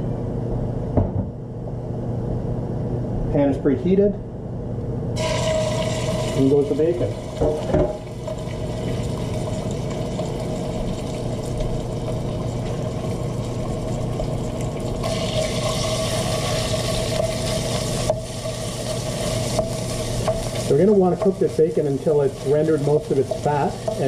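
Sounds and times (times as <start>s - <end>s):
steady hum: 0.0s - 24.0s
bacon sizzling in a frying pan: 5.2s - 24.0s.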